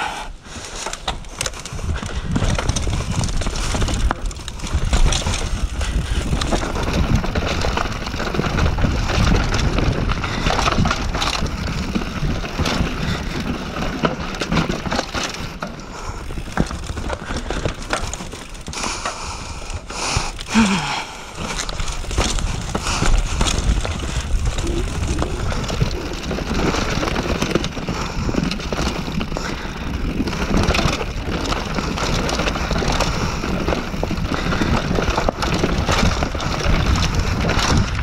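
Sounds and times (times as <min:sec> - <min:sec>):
mountain bike rattling over rocks: 0:00.4 - 0:38.0
tyres crunching on dirt: 0:20.2 - 0:38.0
low rumble: 0:20.4 - 0:28.2.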